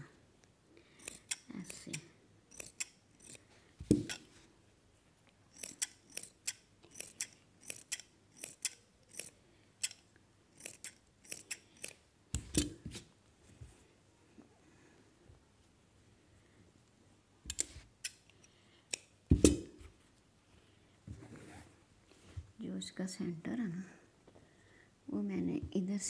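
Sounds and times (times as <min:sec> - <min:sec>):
shears snipping fabric: 0:01.0 - 0:04.3.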